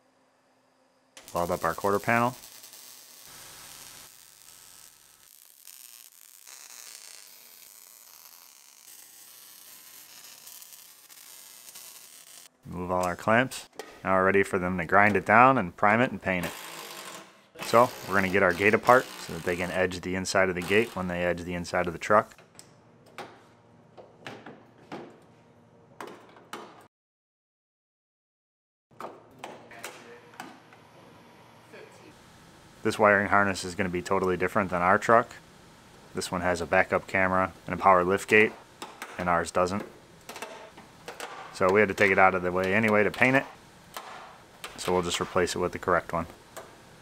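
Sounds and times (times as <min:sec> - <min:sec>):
welding arc sizzling and crackling: 0:00.2 - 0:13.7, 0:14.8 - 0:22.4, 0:31.7 - 0:47.0
sharp knocks and clatters: 0:24.0 - 0:25.3.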